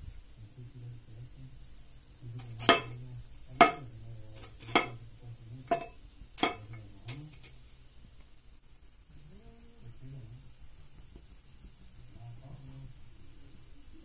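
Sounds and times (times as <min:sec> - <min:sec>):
metal utensil tapping clay plate: 0:02.4 - 0:03.0, 0:03.6 - 0:05.0, 0:05.7 - 0:07.6.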